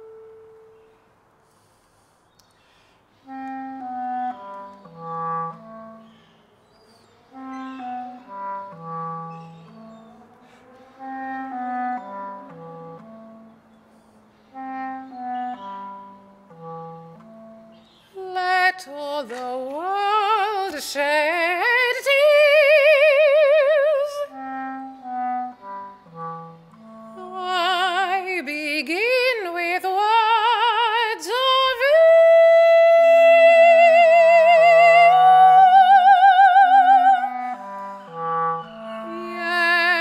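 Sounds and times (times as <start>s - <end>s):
clarinet playing low notes: 0.0s - 2.0s, 3.2s - 40.0s
woman singing with vibrato: 18.2s - 24.4s, 27.2s - 40.0s.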